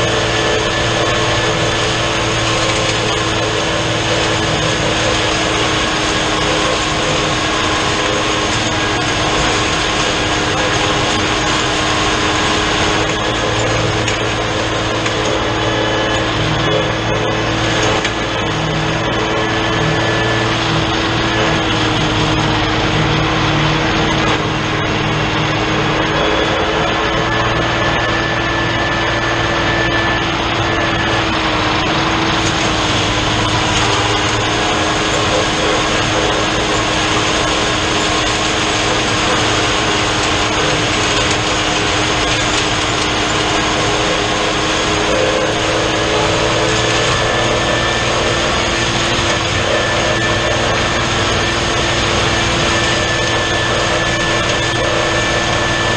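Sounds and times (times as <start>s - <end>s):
drum mower spinning and cutting: 0.0s - 55.9s
tractor diesel engine running: 0.0s - 55.9s.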